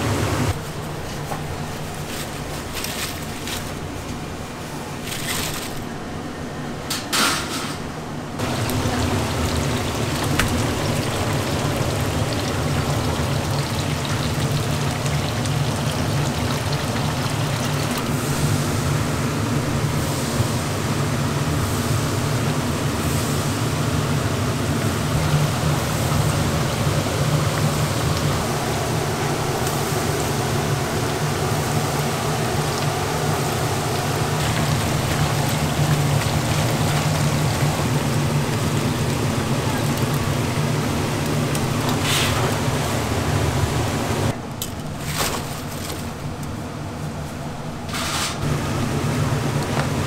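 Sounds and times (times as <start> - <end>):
food sizzling in deep-frying oil: 8.4 - 18.0.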